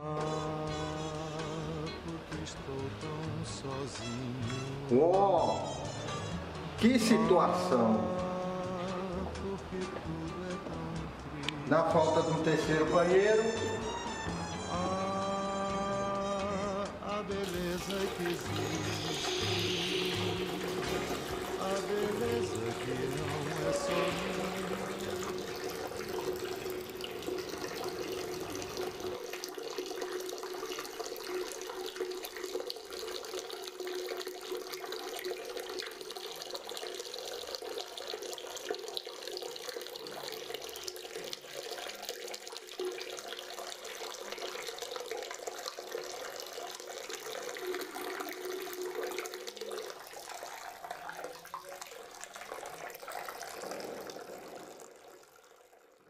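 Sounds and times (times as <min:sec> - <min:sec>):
water running steadily: 0:17.3 - 0:56.0.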